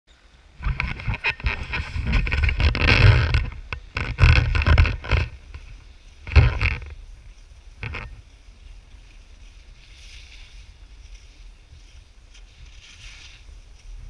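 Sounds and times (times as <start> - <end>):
wind buffeting microphone: 0.5 - 14.0
camera pole scrapes and knocks: 0.6 - 7.0, 7.8 - 8.2.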